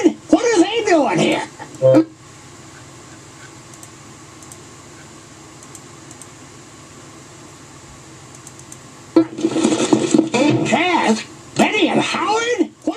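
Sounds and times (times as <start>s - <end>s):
room tone hiss: 0.0s - 12.9s
faint light ticks: 3.7s - 4.6s, 5.6s - 6.3s, 8.3s - 8.8s.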